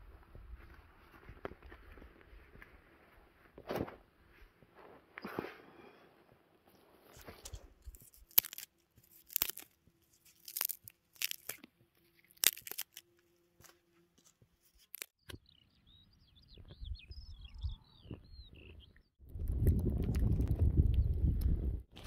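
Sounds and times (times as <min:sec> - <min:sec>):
sharp cracks and crunches: 0:07.1 - 0:15.4
small bird chirping: 0:14.8 - 0:19.2
wind rumble on microphone: 0:16.5 - 0:22.0.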